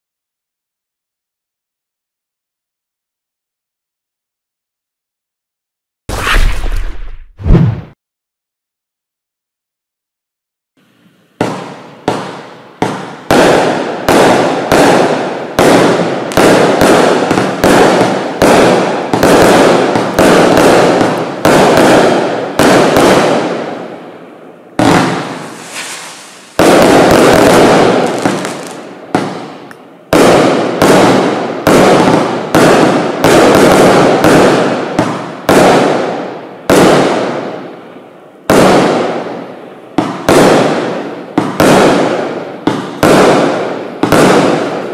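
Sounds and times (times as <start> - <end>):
firework barrage bangs: 6.1 - 8.0, 11.4 - 24.0, 24.8 - 37.6, 38.5 - 39.4, 40.0 - 44.9.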